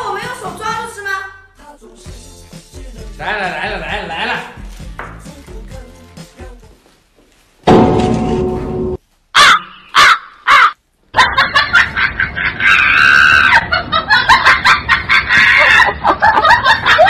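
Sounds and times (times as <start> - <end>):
crows cawing: 9.4 - 10.8.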